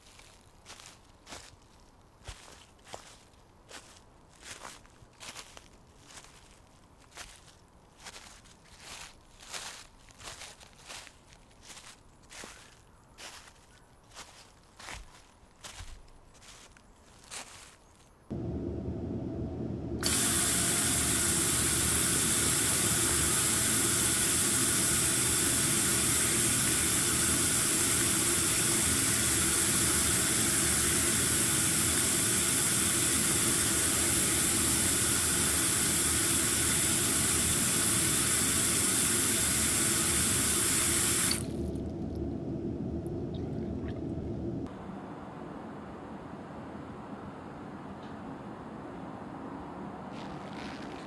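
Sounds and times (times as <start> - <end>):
low hum: 18.3 - 23.8, 41.3 - 45.4
water running from a tap: 20.0 - 41.8.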